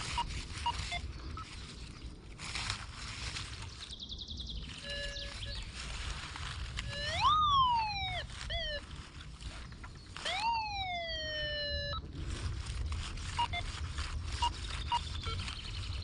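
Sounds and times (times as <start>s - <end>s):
metal detector tones: 0.0s - 1.6s, 4.7s - 12.2s, 13.2s - 16.0s.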